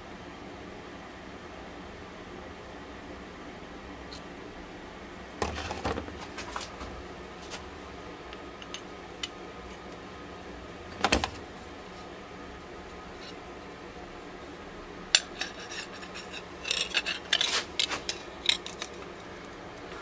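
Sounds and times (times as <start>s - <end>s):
metal tools clinking on bench: 8.6s - 9.4s, 15.2s - 19.0s.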